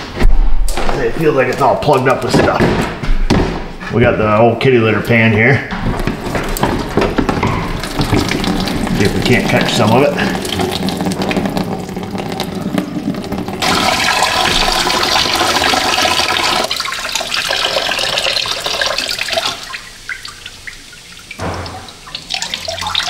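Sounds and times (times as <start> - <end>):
liquid splashing into plastic pan: 5.9 - 23.0.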